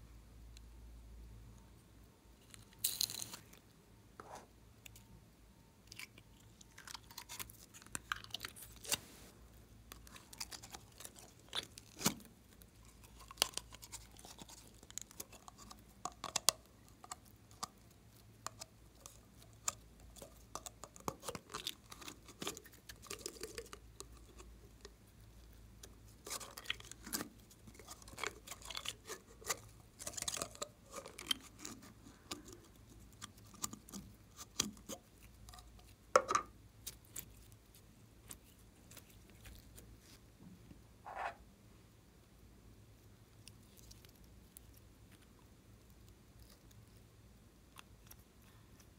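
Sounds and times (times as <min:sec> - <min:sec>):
slime squelching and crackling: 0:09.9 - 0:36.1, 0:36.8 - 0:40.2.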